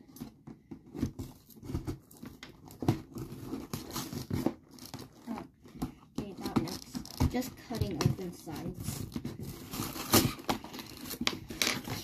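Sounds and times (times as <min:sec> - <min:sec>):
tape tearing and peeling: 0:08.8 - 0:12.0.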